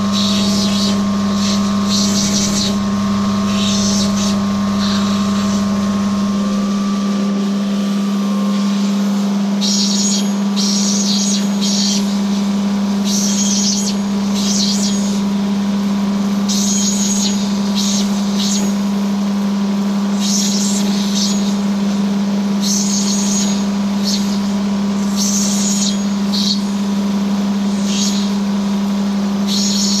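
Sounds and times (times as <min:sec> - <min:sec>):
high rasping grinding: 0:00.0 - 0:07.6
grinding machine motor humming: 0:00.0 - 0:20.4.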